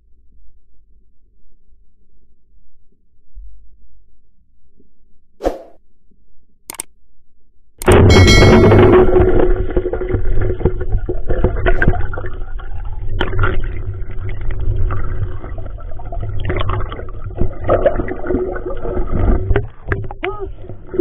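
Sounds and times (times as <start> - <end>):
muffled underwater rumble: 0.0 - 5.3, 8.0 - 21.0
clicks and knocks underwater: 7.8 - 21.0.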